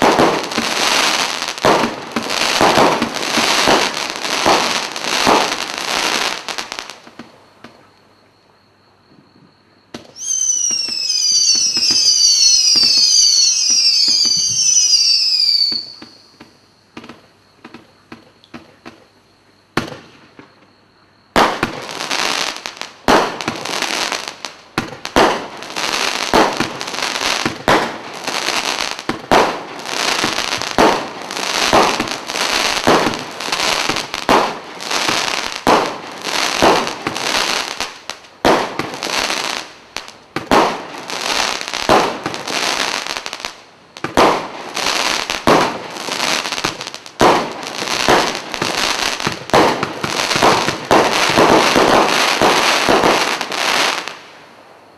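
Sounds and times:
firework barrage shots: 0:00.0 - 0:06.4, 0:23.0 - 0:24.2, 0:24.8 - 0:25.6, 0:26.2 - 0:39.7, 0:40.3 - 0:43.4, 0:44.0 - 0:54.2.

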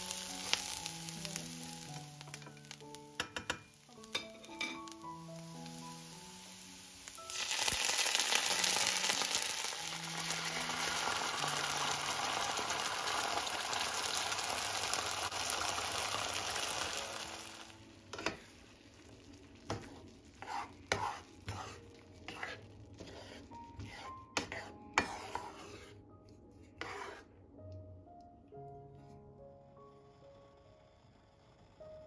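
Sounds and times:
food sizzling in hot oil: 0:00.0 - 0:24.0
spatula scraping a pan: 0:18.1 - 0:18.5, 0:19.7 - 0:26.0, 0:26.7 - 0:27.3.

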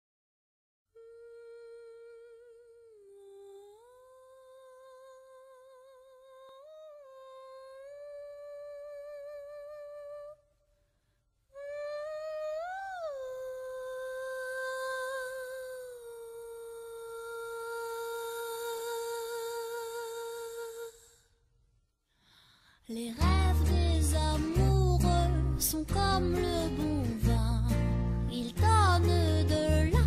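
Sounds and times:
person humming a melody: 0:00.9 - 0:10.4, 0:11.6 - 0:21.1, 0:23.0 - 0:30.0.

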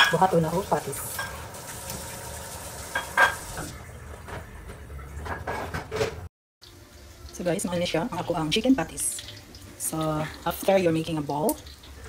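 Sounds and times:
oil hissing in frying pan: 0:00.4 - 0:03.7
dishes knocking and clinking: 0:02.9 - 0:06.3.

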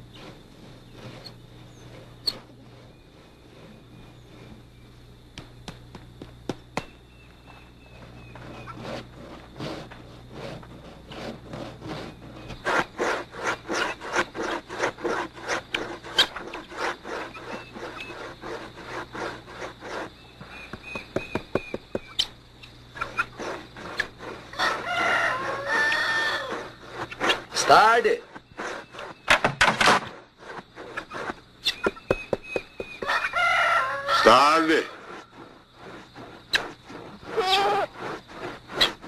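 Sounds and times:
blade scraping a block: 0:07.8 - 0:39.0.

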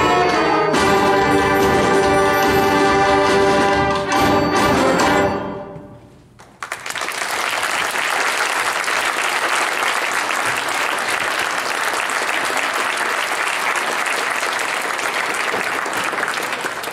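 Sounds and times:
audience applause: 0:06.4 - 0:16.9.

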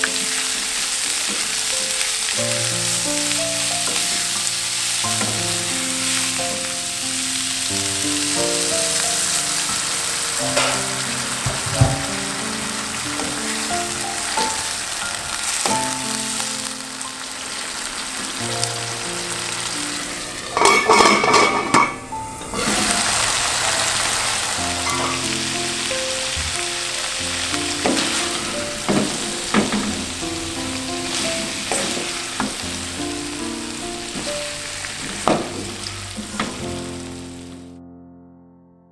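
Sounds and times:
stir-fry sizzling in a wok: 0:00.0 - 0:37.7
soft background music: 0:00.0 - 0:38.0
wooden spatula scraping a wok: 0:22.5 - 0:32.9.

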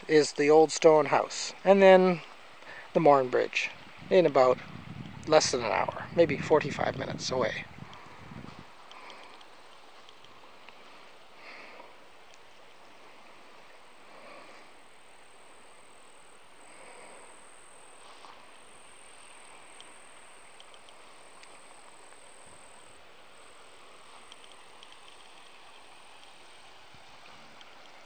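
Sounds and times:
soft outdoor hiss: 0:00.0 - 0:28.0
light ticks: 0:08.8 - 0:10.8, 0:12.2 - 0:12.5, 0:19.7 - 0:22.9, 0:24.2 - 0:26.6, 0:27.5 - 0:28.0.

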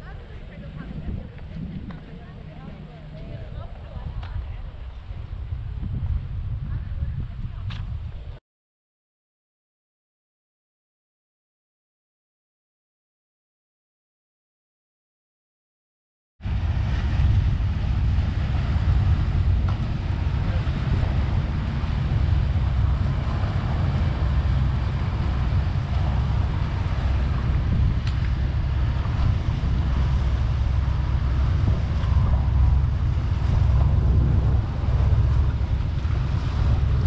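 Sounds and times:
open water wash: 0:00.0 - 0:08.4, 0:16.4 - 0:37.0
wind buffeting microphone: 0:00.0 - 0:08.4, 0:16.4 - 0:37.0.

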